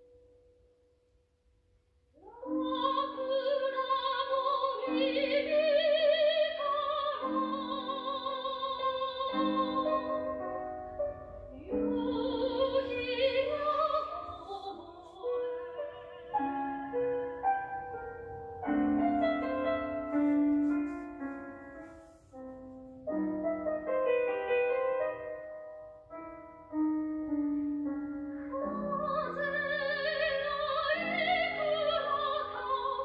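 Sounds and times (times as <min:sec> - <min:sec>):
soprano singing with vibrato: 0:02.2 - 0:10.6, 0:11.4 - 0:17.3, 0:28.2 - 0:33.0
piano chords: 0:02.2 - 0:33.0.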